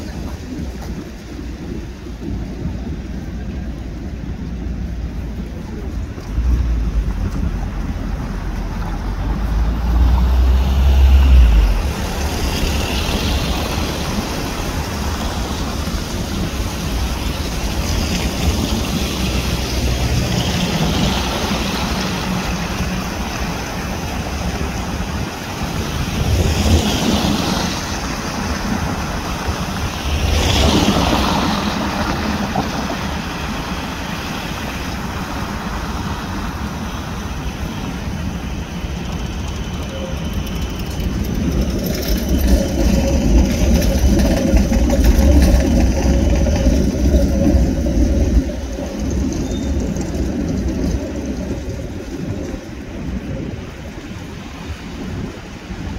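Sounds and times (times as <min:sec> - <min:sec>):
cars passing by: 0:00.0 - 0:55.9
street hum: 0:00.0 - 0:55.9
wind on microphone: 0:00.0 - 0:55.9.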